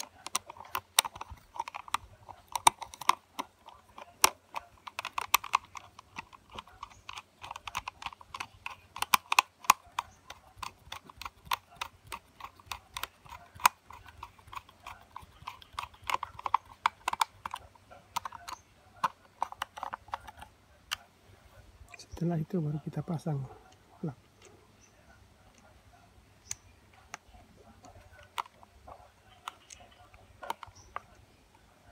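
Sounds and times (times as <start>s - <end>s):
screwdriver clicking on screws: 0.0s - 17.6s.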